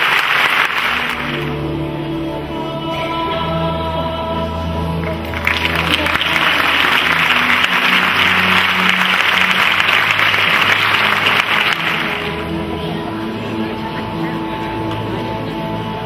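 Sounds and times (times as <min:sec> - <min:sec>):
audience applauding: 0:00.0 - 0:01.6, 0:05.0 - 0:12.6
background music: 0:00.0 - 0:16.0.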